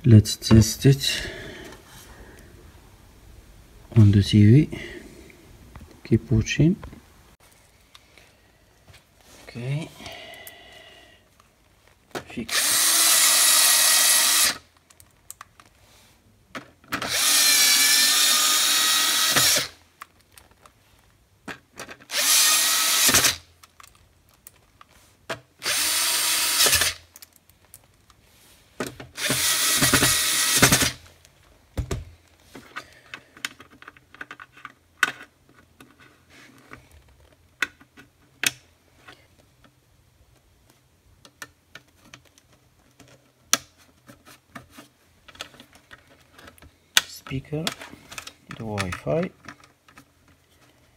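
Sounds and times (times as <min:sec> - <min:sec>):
electric screwdriver motor whine: 0:12.5 - 0:14.6, 0:17.1 - 0:19.7, 0:22.1 - 0:23.4, 0:25.6 - 0:27.0, 0:29.2 - 0:31.0.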